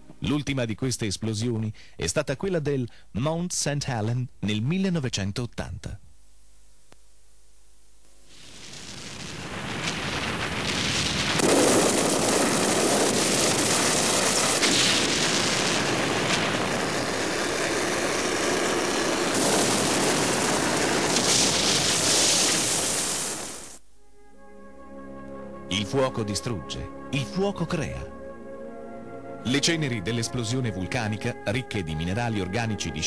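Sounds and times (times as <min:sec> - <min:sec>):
volcanic eruption rumble: 0:08.4 - 0:23.8.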